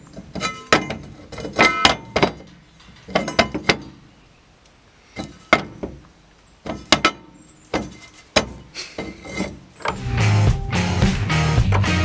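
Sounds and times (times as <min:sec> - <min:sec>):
metal bar scraping: 0:00.0 - 0:04.0, 0:06.6 - 0:10.2
metal knocks and clanks: 0:00.0 - 0:04.0, 0:05.2 - 0:06.0, 0:06.6 - 0:10.0
rock music: 0:09.9 - 0:12.0.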